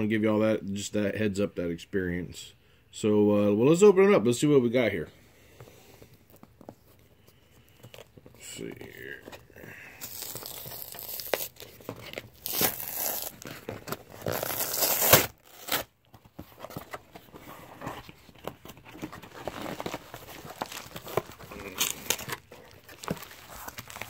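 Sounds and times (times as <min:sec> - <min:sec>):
cardboard box being torn open: 0:10.0 - 0:15.9, 0:19.2 - 0:24.0
cardboard rustling and scraping: 0:10.1 - 0:24.0.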